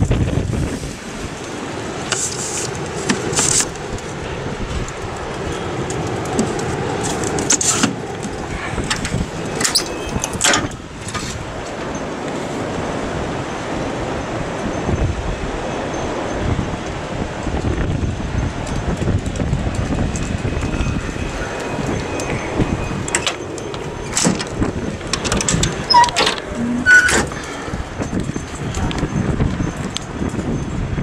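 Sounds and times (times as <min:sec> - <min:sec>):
wind rumbling on microphone: 0:00.0 - 0:31.0.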